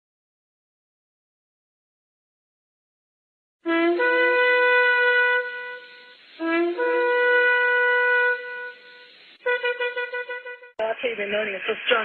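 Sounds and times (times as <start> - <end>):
ram's horn blasts: 3.7 - 10.7.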